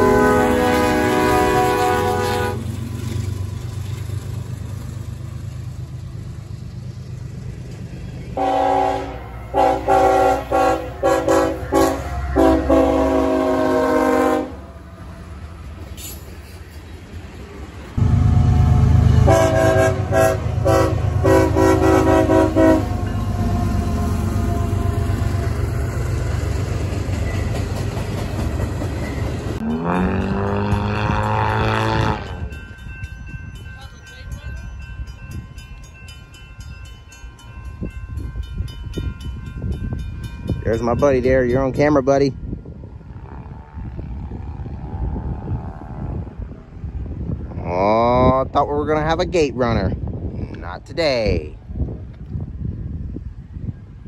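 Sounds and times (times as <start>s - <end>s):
train air horn blasts: 0.0s - 2.7s, 8.4s - 14.7s, 18.0s - 25.2s, 29.6s - 32.6s
train rumbling past: 0.0s - 54.0s.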